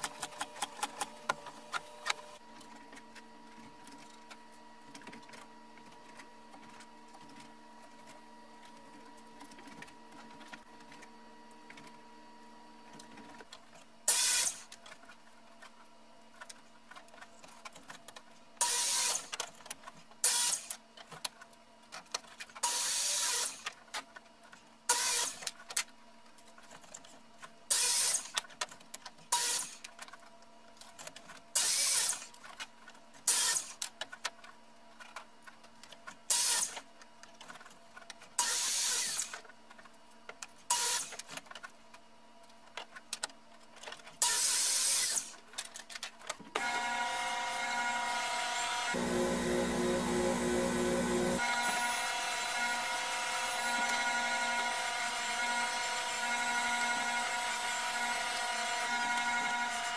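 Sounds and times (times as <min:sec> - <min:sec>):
miter saw cutting: 0:46.6 - 0:59.9
steady held tones: 0:49.0 - 0:51.8.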